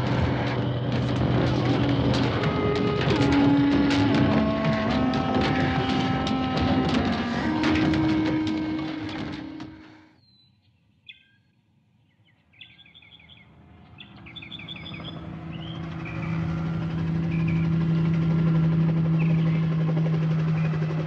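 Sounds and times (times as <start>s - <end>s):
helicopter engine and rotor: 0.0s - 9.8s, 13.6s - 21.0s
birds chirping: 10.2s - 17.8s, 19.1s - 21.0s.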